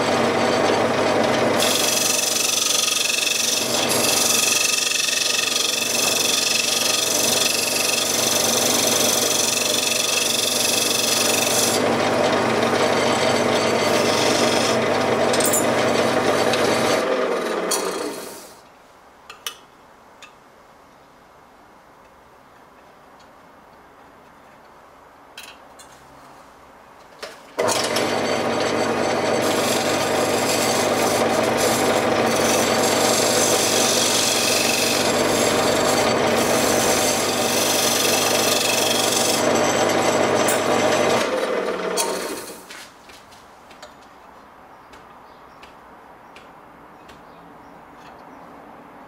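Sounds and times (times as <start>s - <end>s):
lathe motor humming: 0.0s - 18.2s, 27.6s - 42.5s
turning tool scraping wood: 0.0s - 18.5s, 27.6s - 43.0s.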